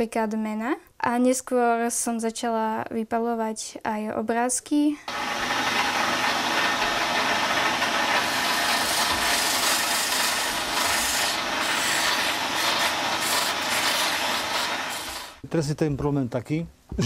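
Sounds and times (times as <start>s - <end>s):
abrasive cloth rubbing spinning wood: 5.1s - 15.4s.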